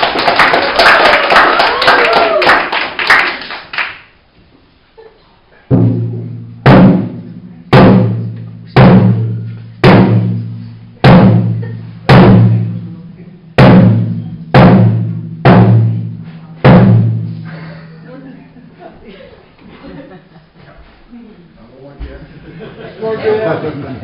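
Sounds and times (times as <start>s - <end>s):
applause: 0.0s - 4.2s
large drum beaten slowly: 5.7s - 18.1s.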